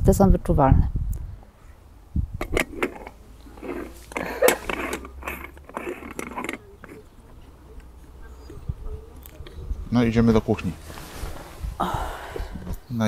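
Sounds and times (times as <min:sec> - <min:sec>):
scraping and rattling of coffee gear: 0:02.4 - 0:08.6.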